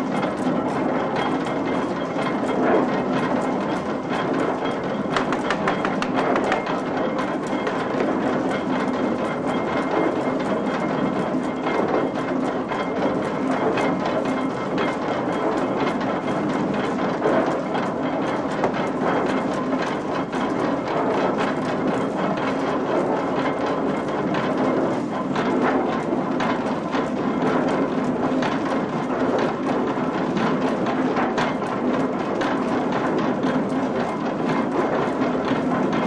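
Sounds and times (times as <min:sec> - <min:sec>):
wooden sieve box clattering: 0:05.1 - 0:06.9.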